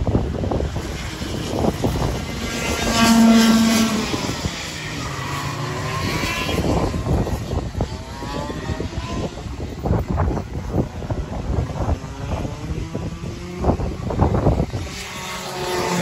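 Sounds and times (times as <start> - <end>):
go-kart engines running: 0.0 - 16.0.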